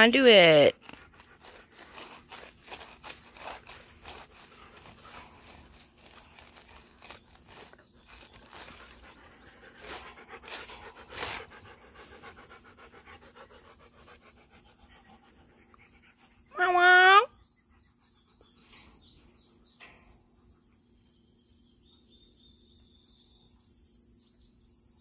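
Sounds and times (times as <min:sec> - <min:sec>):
dog panting: 0:00.7 - 0:16.5.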